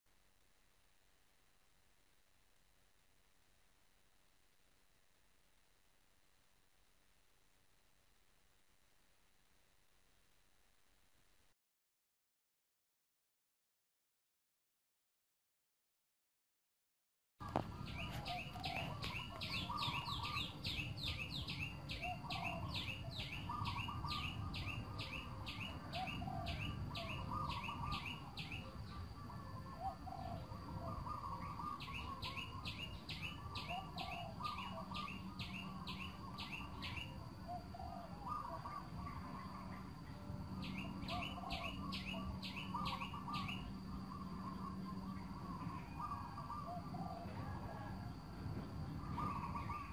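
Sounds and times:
outdoor background noise: 0.1s - 11.6s, 17.4s - 49.9s
low bird warbling calls: 17.4s - 48.0s, 48.9s - 49.9s
rapid high bird chirps: 17.8s - 25.8s, 40.6s - 46.7s.

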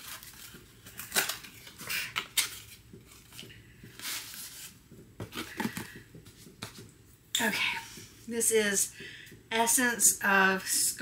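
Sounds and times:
cardboard packaging rustling: 0.0s - 6.1s.

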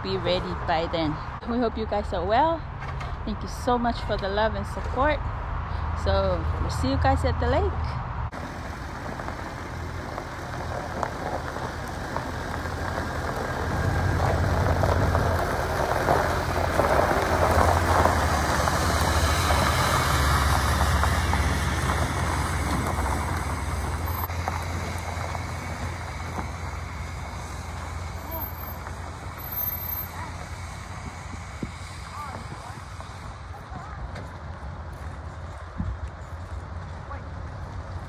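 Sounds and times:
pickup truck engine running: 8.3s - 35.6s
tyres crunching over gravel: 8.3s - 38.0s.

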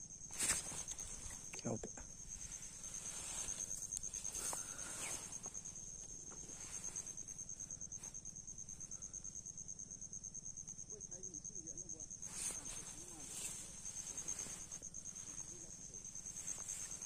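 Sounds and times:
insect trilling: 0.0s - 17.0s
soft handling rustling: 0.4s - 1.6s, 2.3s - 8.2s, 12.2s - 17.0s.

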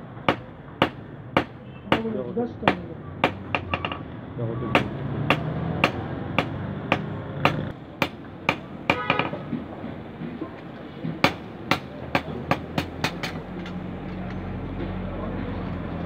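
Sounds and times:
hammer striking metal on anvil: 0.3s - 4.0s, 4.7s - 9.6s, 11.0s - 14.6s.

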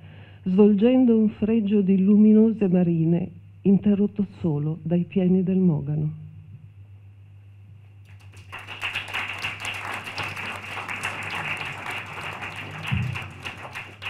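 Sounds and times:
audience applauding: 8.1s - 14.0s.

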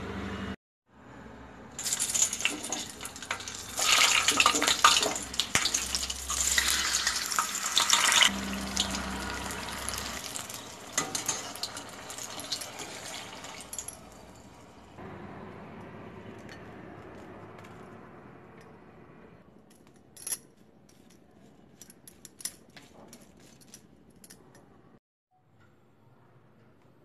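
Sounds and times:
oil sizzling and crackling: 1.8s - 15.0s.

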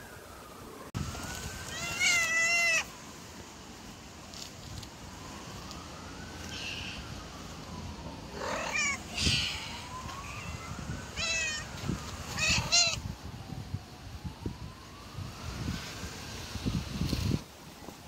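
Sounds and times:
distant siren wailing: 0.0s - 17.4s
cats meowing: 1.7s - 2.9s, 8.4s - 11.7s, 12.3s - 13.0s.

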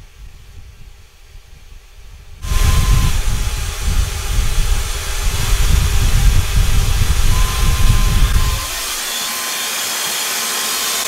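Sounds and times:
hair dryer running: 2.4s - 11.0s
hair dryer switch: 2.4s - 11.0s.

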